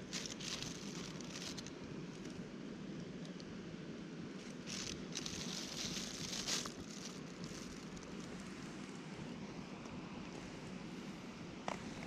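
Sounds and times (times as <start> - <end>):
plastic bag rustling: 0.0 - 1.7, 4.4 - 8.6.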